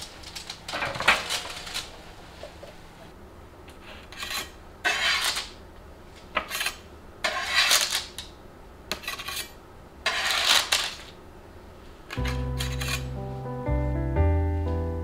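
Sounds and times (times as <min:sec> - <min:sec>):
metal spatula scraping baking tray: 0:04.1 - 0:05.6, 0:06.4 - 0:08.1, 0:08.9 - 0:11.1, 0:12.1 - 0:13.1.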